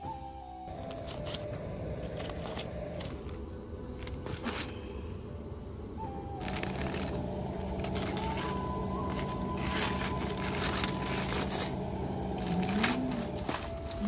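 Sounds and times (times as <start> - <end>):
steady low tone: 0.0 - 14.0
aluminium foil crinkling and tearing: 4.0 - 4.8, 6.3 - 14.0
knife slitting foil: 6.4 - 11.8.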